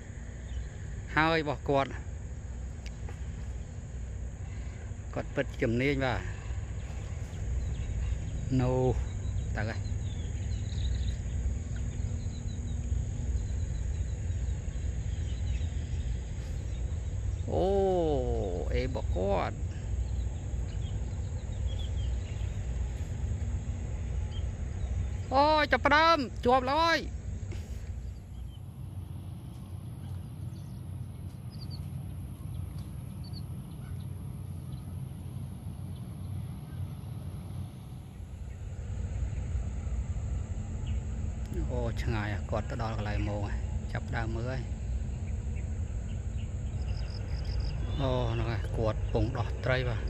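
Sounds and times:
insects trilling and chirping: 0.0s - 50.0s
wind rumbling on microphone: 0.0s - 50.0s.

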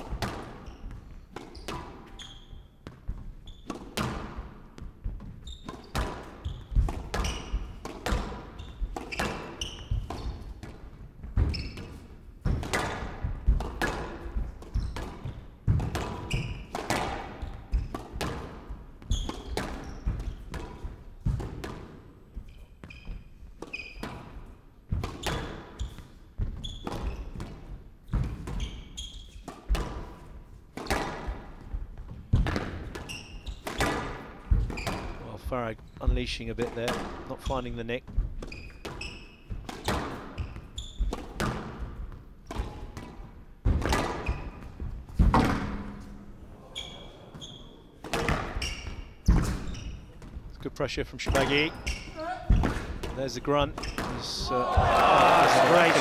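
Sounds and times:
shoe squeaks: 0.6s - 3.8s, 5.3s - 7.8s, 8.4s - 10.5s, 11.4s - 12.1s, 14.7s - 15.4s, 16.2s - 16.7s, 17.4s - 18.0s, 19.0s - 20.5s, 22.4s - 24.2s, 25.2s - 27.4s, 28.1s - 29.5s, 33.0s - 33.9s, 34.6s - 36.2s, 38.4s - 41.2s, 44.2s - 44.8s, 46.6s - 50.2s, 51.3s - 52.6s, 53.2s - 54.5s
squash ball cracking off rackets: 11.4s - 18.6s.

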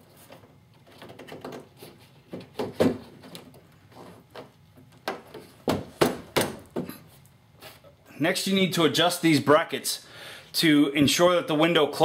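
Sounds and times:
clicks and knocks of weather stripping: 0.2s - 5.8s.

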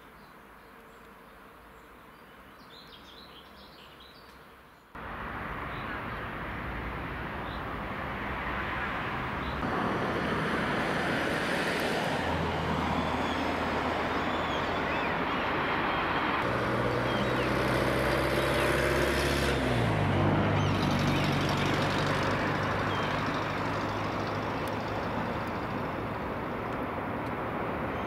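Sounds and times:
diesel locomotives running: 9.6s - 26.8s.

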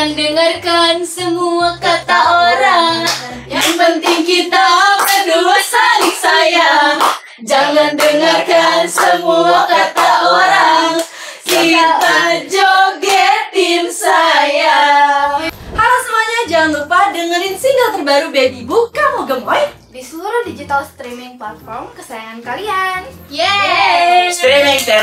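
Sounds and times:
hands clapping along: 3.0s - 4.4s, 5.0s - 5.3s, 6.0s - 6.4s, 7.0s - 7.4s, 8.0s - 8.4s, 9.0s - 10.3s, 11.0s - 12.3s, 13.0s - 13.2s.

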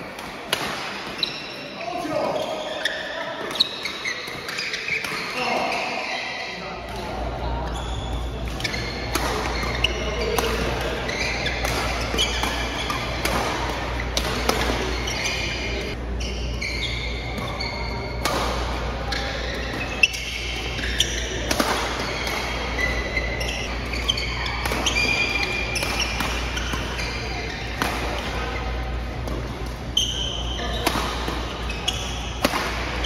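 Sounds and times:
shoes squeaking on court: 1.0s - 6.7s, 7.6s - 33.0s
racket striking shuttlecock: 8.4s - 15.6s, 19.6s - 28.3s, 30.7s - 33.0s.

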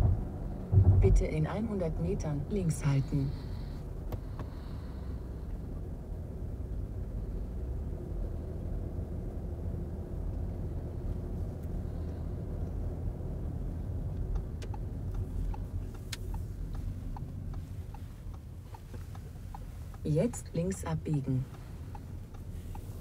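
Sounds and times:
turn indicator ticking: 1.0s - 4.9s, 12.8s - 23.0s.

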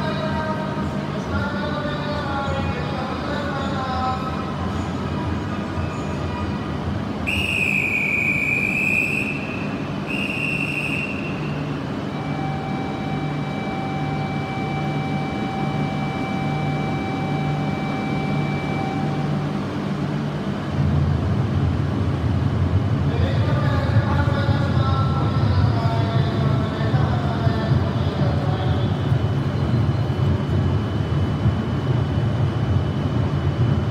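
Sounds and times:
train low pulsing hum: 0.0s - 33.9s
platform whistle blasts: 7.3s - 19.4s
steady electronic tone: 7.7s - 20.5s.

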